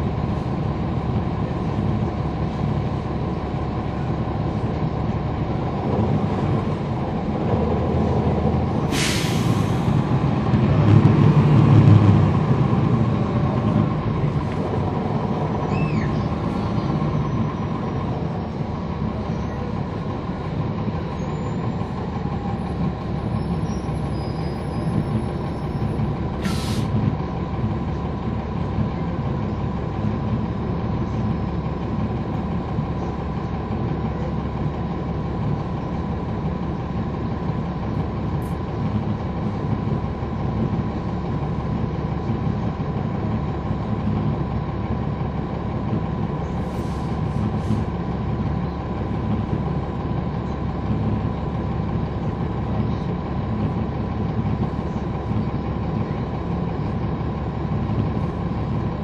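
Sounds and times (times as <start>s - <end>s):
bus diesel engine rumbling: 0.0s - 59.0s
air hiss: 8.9s - 9.9s, 26.4s - 26.9s.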